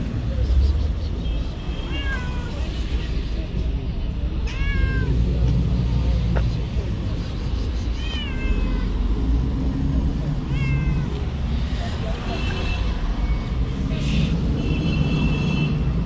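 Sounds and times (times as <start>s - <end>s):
cat meowing: 1.8s - 2.7s, 4.4s - 5.2s, 8.0s - 9.0s, 10.4s - 11.4s.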